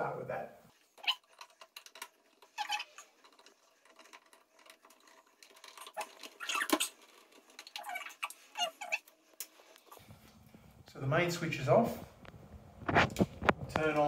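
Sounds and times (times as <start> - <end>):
screwdriver clicking and scraping: 0.8 - 10.0.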